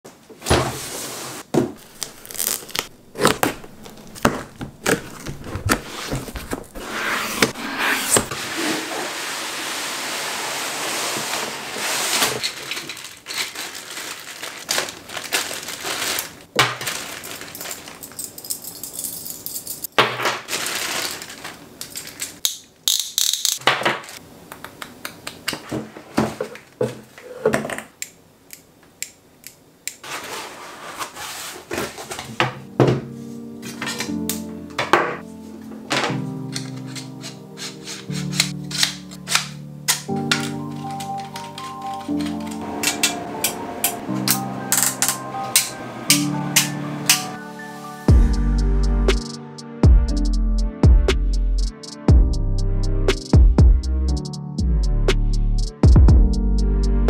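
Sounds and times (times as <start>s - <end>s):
cardboard and packing rustling: 0.3s - 9.9s, 10.5s - 18.3s, 20.4s - 22.4s, 30.0s - 39.4s, 40.0s - 43.2s.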